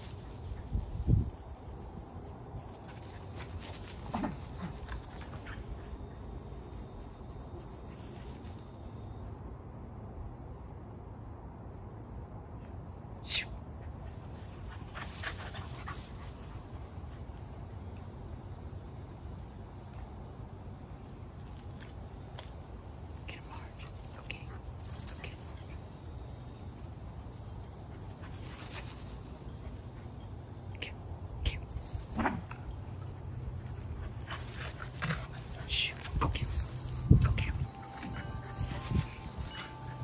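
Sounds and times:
night insects trilling: 0.0 - 40.0
dogs scuffling and panting: 2.6 - 6.5, 14.2 - 17.2, 27.3 - 30.2, 32.0 - 40.0.

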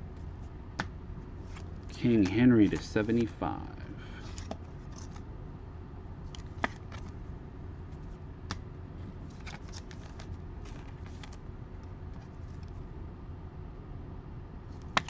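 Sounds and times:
steady low hum: 0.0 - 15.0
cards clicking: 0.8 - 3.3, 6.3 - 7.2, 9.3 - 11.4, 14.8 - 15.0
card stock rustling: 1.4 - 3.3, 6.3 - 7.2, 9.3 - 11.4.

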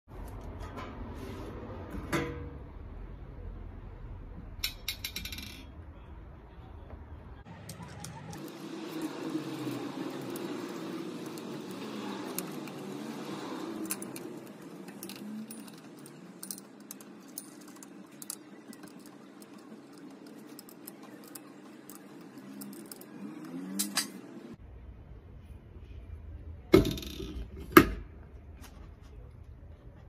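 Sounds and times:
metal clinks and ticks: 8.0 - 24.1.

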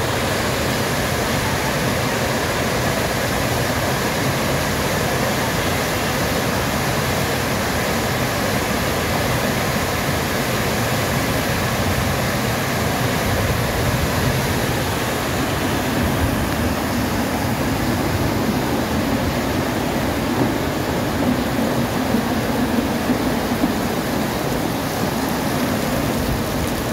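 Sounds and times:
water rushing over a ledge: 0.0 - 26.9.

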